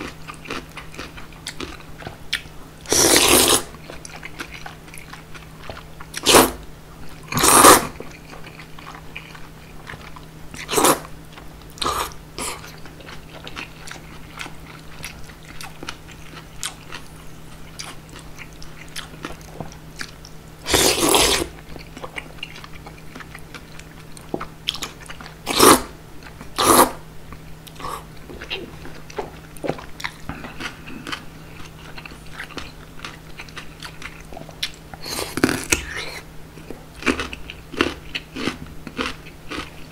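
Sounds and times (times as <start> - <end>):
soft wet chewing: 0.0 - 6.3, 7.0 - 25.6, 27.3 - 39.9
slurping noodles: 2.9 - 3.7, 6.2 - 6.6, 7.3 - 8.0, 10.6 - 11.1, 11.8 - 12.7, 20.7 - 21.5, 25.5 - 25.9, 26.6 - 27.0.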